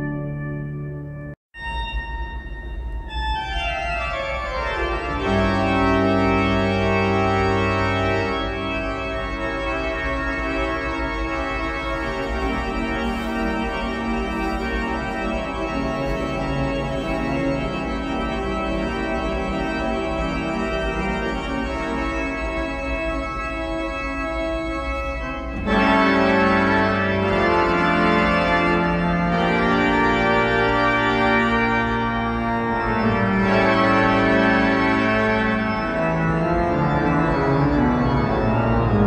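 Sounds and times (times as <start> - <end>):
church organ playing: 0.0 - 39.0.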